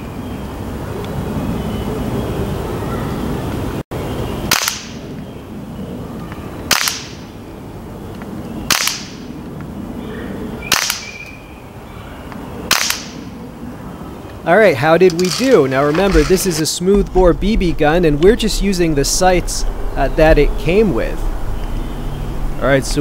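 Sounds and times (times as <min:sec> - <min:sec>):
air rifle shots cracking: 0:04.5 - 0:05.0, 0:06.6 - 0:07.3, 0:08.7 - 0:09.3, 0:10.6 - 0:11.2, 0:12.7 - 0:13.3.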